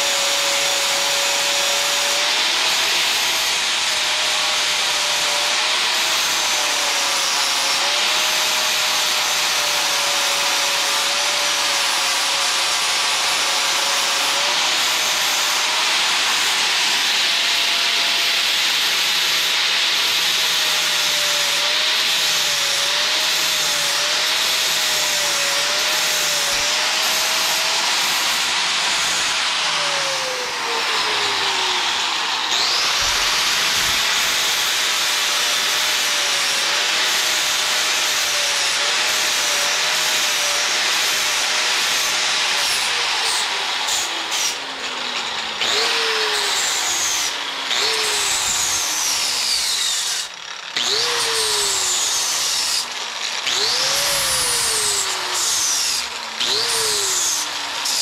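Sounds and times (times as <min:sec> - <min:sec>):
angle grinder grinding metal: 0:00.0 - 0:58.0.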